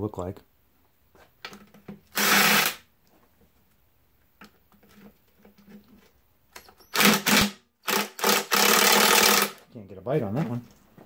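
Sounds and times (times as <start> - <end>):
cordless drill spinning: 2.1 - 2.8, 6.8 - 9.6.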